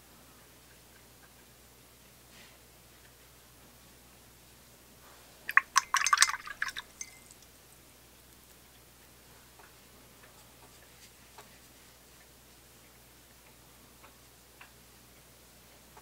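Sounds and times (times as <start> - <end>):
glass ringing: 5.5 - 7.4
water splashing: 5.5 - 7.4
brush clinking against glass: 5.5 - 7.5.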